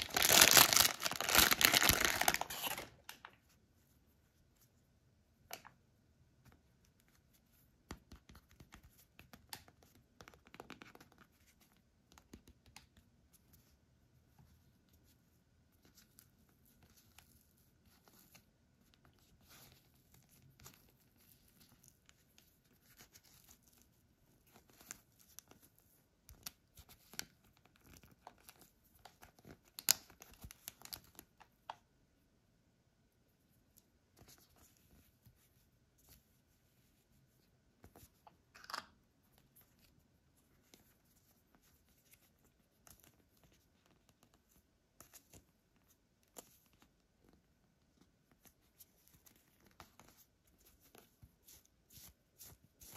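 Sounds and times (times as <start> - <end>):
plastic wrap crackling: 0.0 - 3.4.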